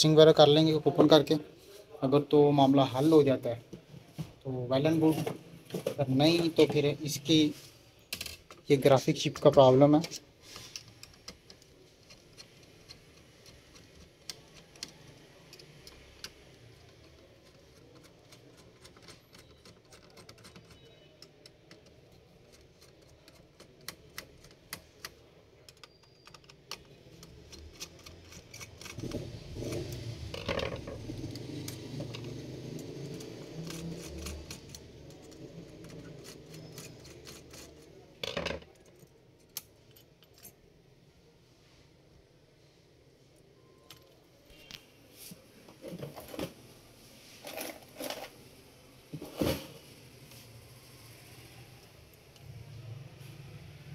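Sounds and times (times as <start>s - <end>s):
handling and rubbing noise: 2.6s - 8.0s, 27.3s - 38.0s.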